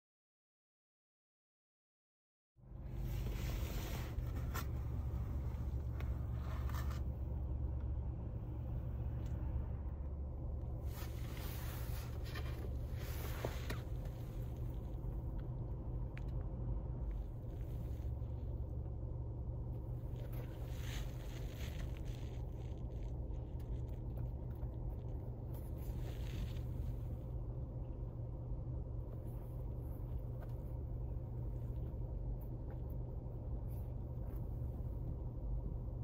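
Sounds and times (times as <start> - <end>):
car cabin rumble: 2.6 - 36.0
rustling and scraping of shoebox: 3.0 - 7.1, 10.8 - 14.9, 20.1 - 23.1, 25.5 - 27.1.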